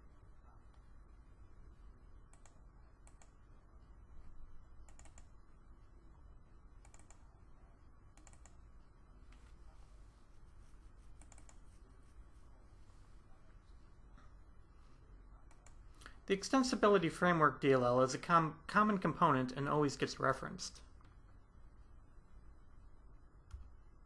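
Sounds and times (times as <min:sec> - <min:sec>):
low steady hum: 0:00.0 - 0:24.0
computer mouse clicks: 0:02.3 - 0:03.4, 0:04.8 - 0:05.4, 0:06.8 - 0:07.3, 0:08.1 - 0:08.6, 0:11.1 - 0:11.7, 0:15.4 - 0:16.2.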